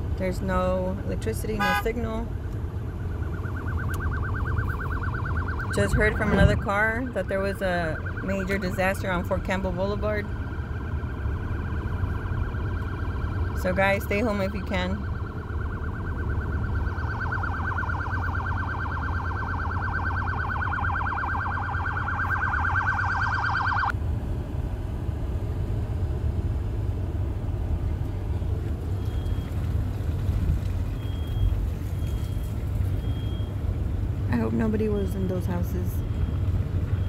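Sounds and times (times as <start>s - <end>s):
car engine and road rumble: 0.0s - 37.0s
siren warbling: 1.4s - 23.9s.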